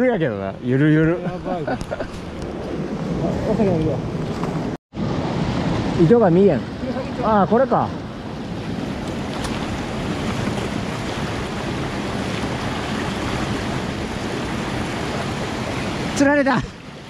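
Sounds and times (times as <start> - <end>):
stream rushing over rocks: 5.0 - 17.0.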